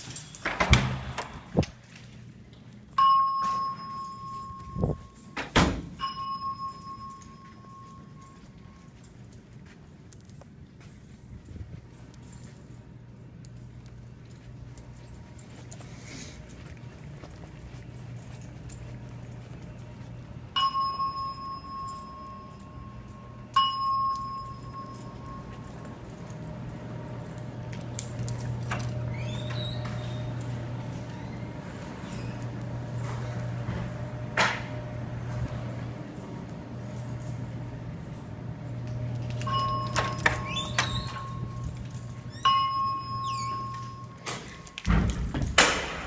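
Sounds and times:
steady low hum: 0.1s - 46.0s
chime dings: 2.9s - 5.4s, 6.0s - 8.9s, 20.5s - 25.9s, 39.2s - 40.6s, 41.2s - 44.8s.

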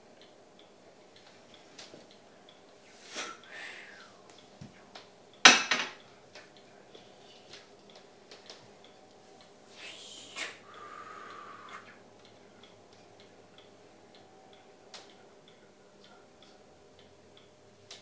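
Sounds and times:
faint regular ticking: 0.0s - 9.8s, 10.6s - 18.0s
person blowing hard: 3.1s - 4.1s, 9.7s - 12.0s.

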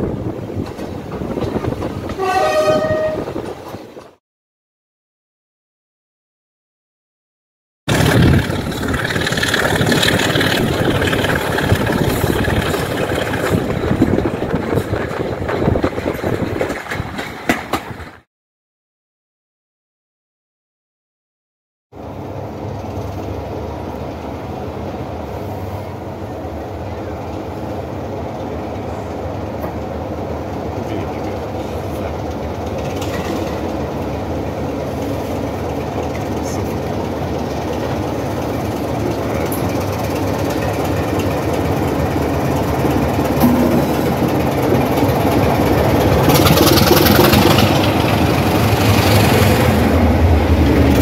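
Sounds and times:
diesel locomotive engine running: 7.9s - 18.2s, 22.0s - 51.0s.

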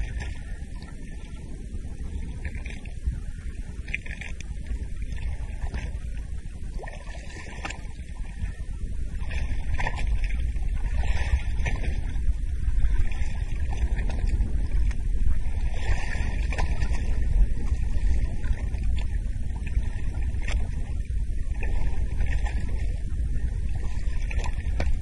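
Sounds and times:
water splashing and sloshing: 0.0s - 25.0s
wind buffeting microphone: 0.0s - 25.0s.

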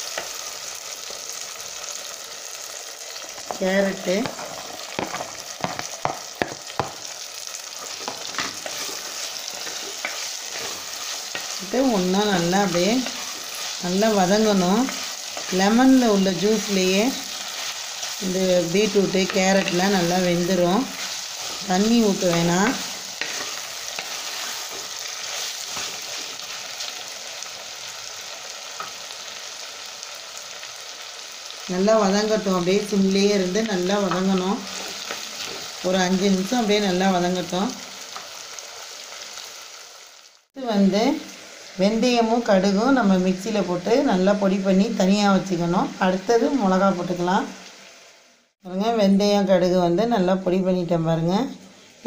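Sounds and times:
oil sizzling: 0.0s - 52.0s
wooden spatula stirring vegetables: 3.4s - 27.6s, 32.2s - 36.8s
spatula scraping a pot: 7.8s - 11.6s, 20.8s - 26.7s.

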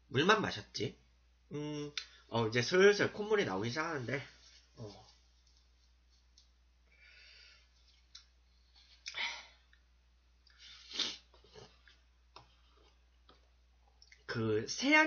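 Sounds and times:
tissue rustling: 3.6s - 6.4s
man blowing his nose: 10.6s - 11.3s.

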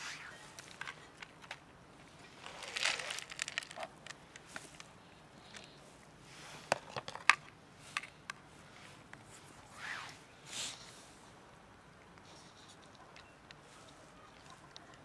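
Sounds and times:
cats crunching dry kibble: 0.6s - 5.8s.

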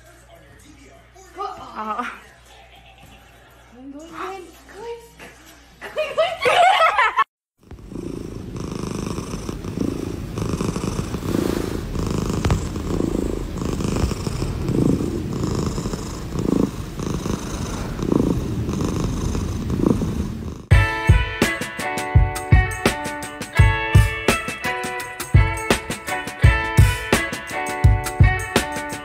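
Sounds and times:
cat purring: 7.6s - 20.7s.

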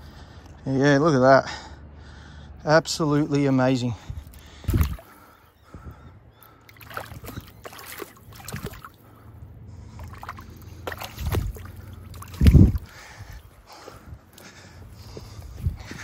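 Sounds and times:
river water sloshing: 4.2s - 5.6s, 6.4s - 16.0s
small splashes: 4.3s - 5.4s, 6.4s - 9.2s, 9.8s - 13.4s.

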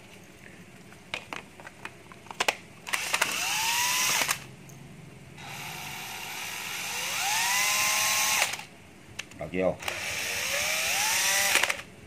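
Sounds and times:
drill motor whine: 2.9s - 4.4s, 5.4s - 8.7s, 9.8s - 11.9s
drill trigger clicks: 2.9s - 4.4s, 5.4s - 8.7s, 9.8s - 11.9s.

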